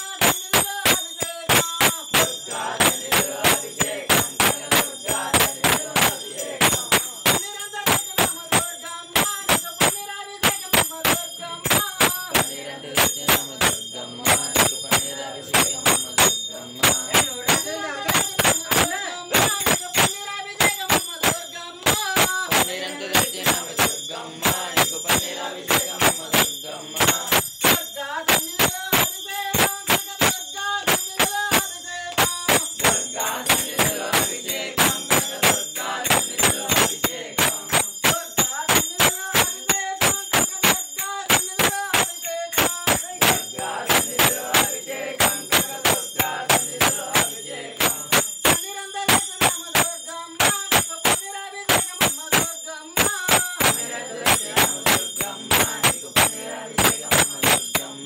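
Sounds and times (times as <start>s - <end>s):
devotional singing: 0.0s - 9.2s, 9.8s - 40.2s, 40.8s - 49.1s, 53.2s - 58.0s
bells ringing: 0.0s - 58.0s
hand claps: 0.0s - 58.0s.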